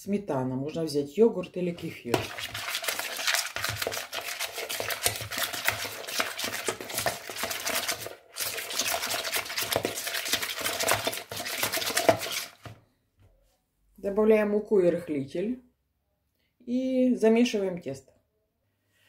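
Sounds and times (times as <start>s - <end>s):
fork beating in plastic bowl: 1.8s - 12.8s.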